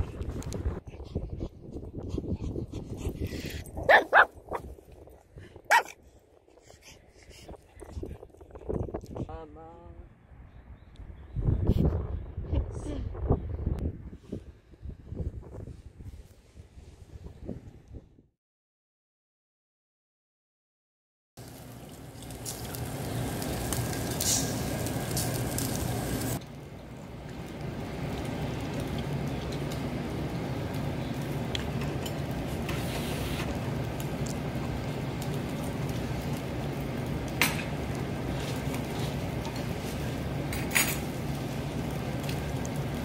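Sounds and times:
meat sizzling on a grill: 0:21.4 - 0:26.4, 0:27.4 - 0:43.0.

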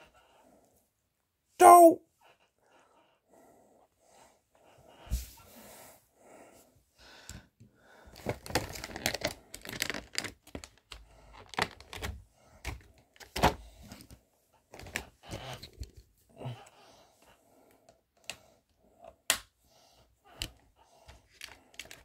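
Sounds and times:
packaging clicks and crinkling: 0:08.1 - 0:14.1, 0:14.7 - 0:15.8, 0:21.2 - 0:22.0.

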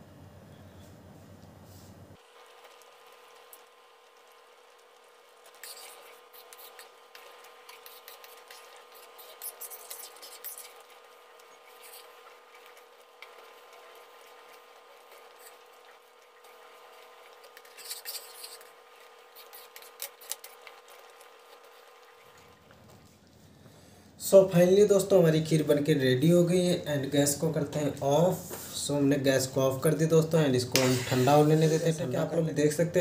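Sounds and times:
steady hum: 0:00.0 - 0:33.0
ladle stirring thick pudding: 0:02.4 - 0:23.3.

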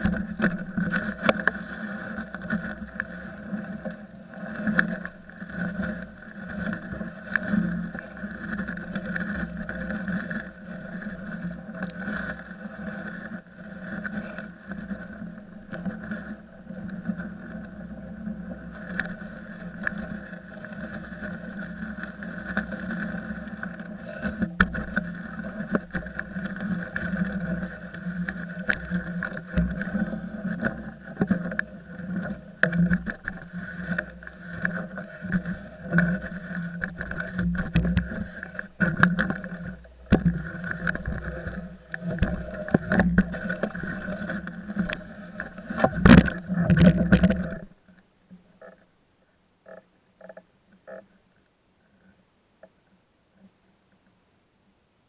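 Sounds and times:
log scraping over ground: 0:00.0 - 0:47.8.

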